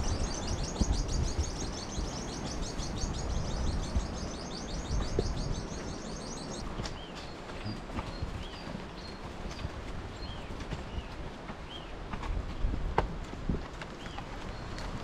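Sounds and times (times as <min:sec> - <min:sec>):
bird trilling: 0:00.0 - 0:06.6
bird chirping: 0:00.0 - 0:09.2.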